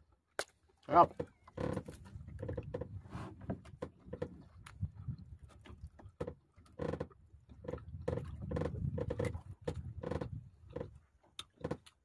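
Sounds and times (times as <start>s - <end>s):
man chewing wetly: 10.9s - 12.0s.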